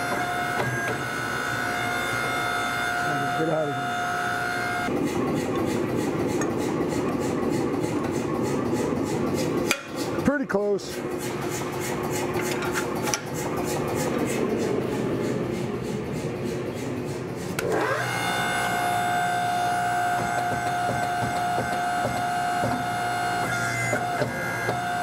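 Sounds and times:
hydraulic press motor whine: 0.0s - 8.9s, 17.5s - 25.0s
pulsing shop noise: 0.0s - 25.0s.

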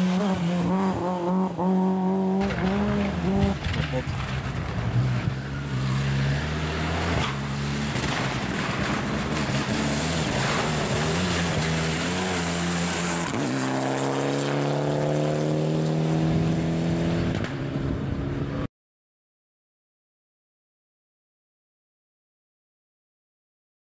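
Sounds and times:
rally car engine running hard: 0.0s - 17.5s.

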